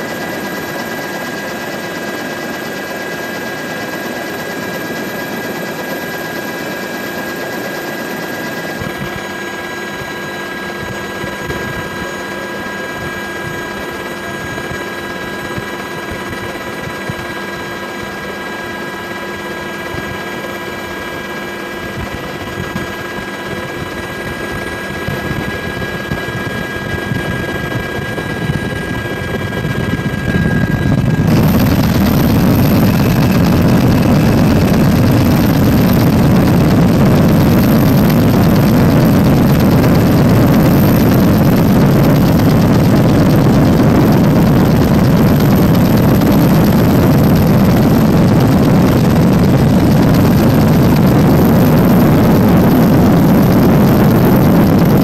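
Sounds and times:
helicopter rotor and engine drone: 0:00.0 - 0:55.0
high-pitched whines: 0:22.6 - 0:55.0.

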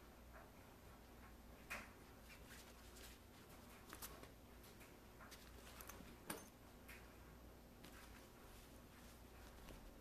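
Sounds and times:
kitten claws scratching fabric: 0:02.2 - 0:06.2.

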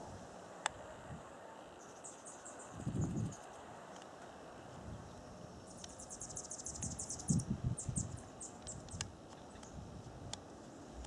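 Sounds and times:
small bird chittering trill: 0:01.8 - 0:03.5, 0:04.9 - 0:09.8.

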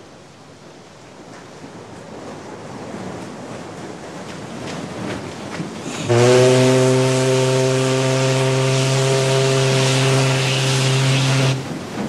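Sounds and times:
steam hissing: 0:05.8 - 0:12.0
steam whistle long blast: 0:06.0 - 0:11.7.

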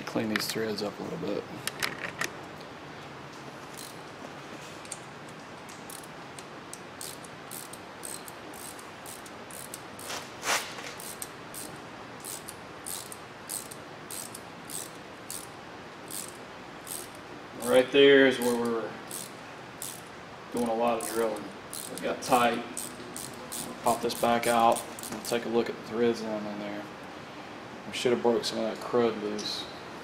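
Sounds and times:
hand ratchet clicking: 0:03.8 - 0:04.0, 0:05.9 - 0:10.1, 0:11.0 - 0:15.5, 0:16.1 - 0:17.2, 0:18.6 - 0:25.4.

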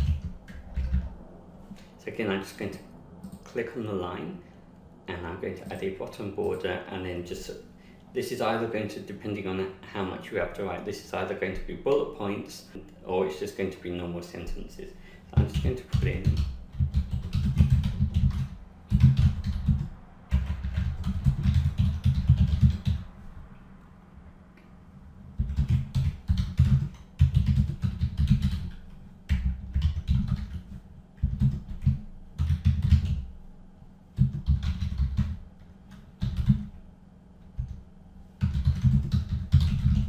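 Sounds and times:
typing on computer keyboard: 0:00.0 - 0:01.1, 0:15.4 - 0:23.0, 0:25.4 - 0:33.2, 0:34.2 - 0:36.7, 0:38.4 - 0:40.0.

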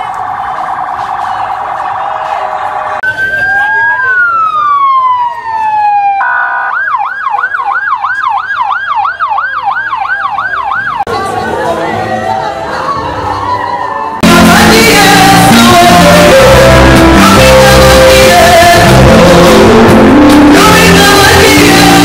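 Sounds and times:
police siren: 0:00.0 - 0:11.1.

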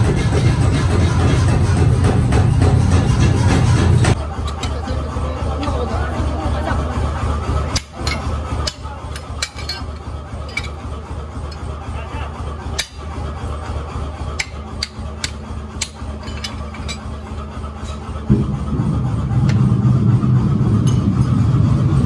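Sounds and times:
low hum: 0:00.0 - 0:22.0
hammer striking steel on anvil: 0:07.6 - 0:10.9, 0:12.7 - 0:13.2, 0:14.3 - 0:18.6.

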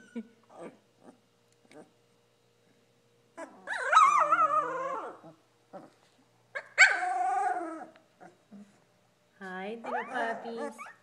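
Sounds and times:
puppy whining: 0:00.0 - 0:02.0, 0:03.3 - 0:08.8, 0:09.8 - 0:11.0.

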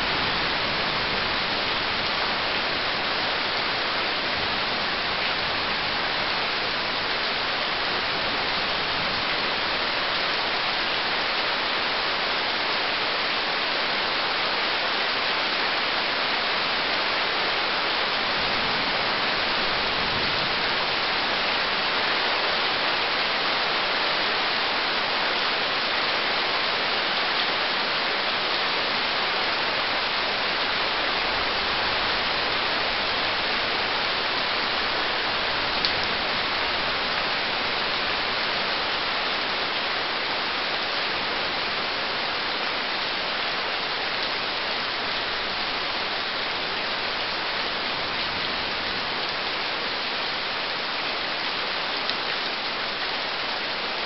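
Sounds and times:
steady rain hiss: 0:00.0 - 0:54.0.

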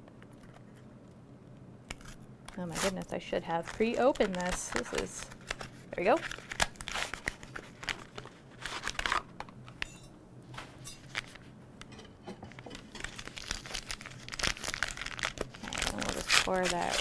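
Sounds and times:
packet crinkling and tearing: 0:01.9 - 0:09.8, 0:11.1 - 0:11.4, 0:12.7 - 0:17.0.

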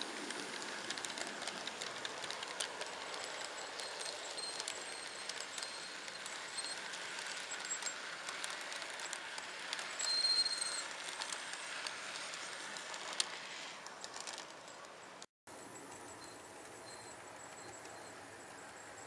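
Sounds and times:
model train cars rolling: 0:00.0 - 0:19.0
wheels clicking over rail joints: 0:00.0 - 0:19.0
high squeal: 0:03.5 - 0:08.0, 0:09.9 - 0:11.0.

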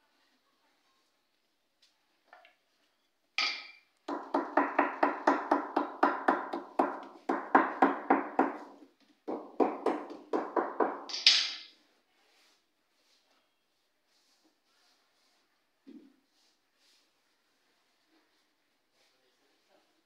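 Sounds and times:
hammer striking wooden panel: 0:03.4 - 0:11.6.

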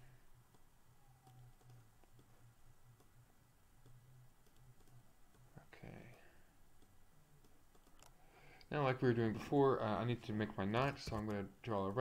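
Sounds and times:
faint low hum: 0:00.0 - 0:12.0
mouse and keyboard clicks: 0:00.5 - 0:02.4, 0:03.8 - 0:06.2, 0:06.8 - 0:08.2.

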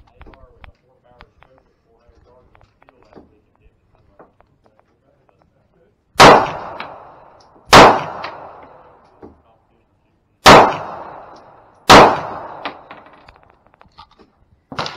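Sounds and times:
pistol shots: 0:06.2 - 0:09.3, 0:10.4 - 0:13.1.

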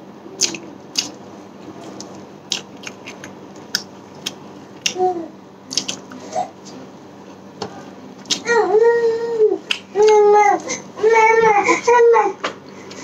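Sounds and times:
person chewing with wet mouth clicks: 0:00.4 - 0:01.2, 0:01.8 - 0:05.0, 0:05.7 - 0:06.2.

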